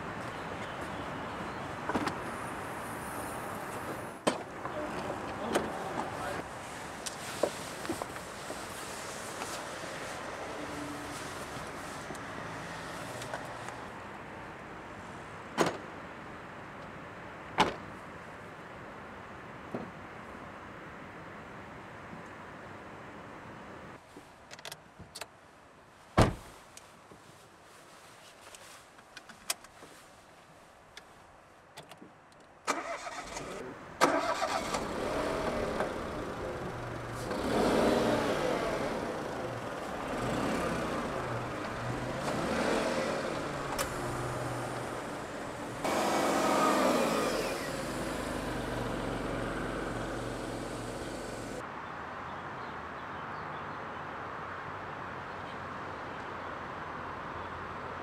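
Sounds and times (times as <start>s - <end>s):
car engine starting and revving: 32.7s - 51.6s.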